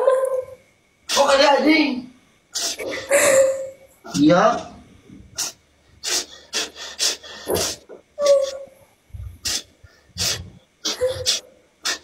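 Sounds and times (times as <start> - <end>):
person breathing hard: 5.4 - 8.6, 9.2 - 12.0
person whimpering: 9.4 - 12.0.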